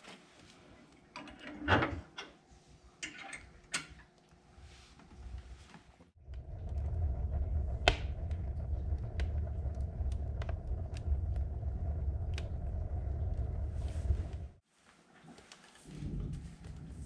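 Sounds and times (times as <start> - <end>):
low rumble of flames: 6.1 - 14.6, 15.9 - 17.0
burning wood crackling and popping: 6.2 - 14.6.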